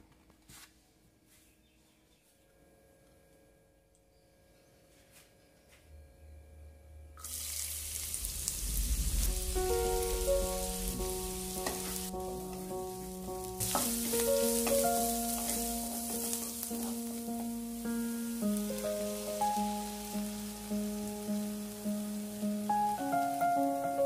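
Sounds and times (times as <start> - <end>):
onions sizzling in hot oil: 7.2 - 24.0
soft background music: 8.9 - 24.0
spatula stirring in pan: 11.6 - 17.6.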